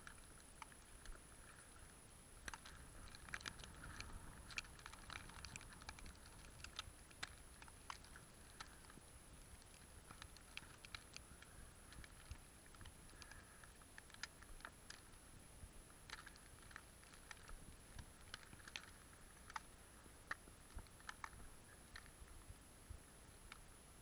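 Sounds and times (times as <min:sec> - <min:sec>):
faint high-pitched whine: 0:00.0 - 0:24.0
faint ticks and crunches: 0:00.0 - 0:24.0.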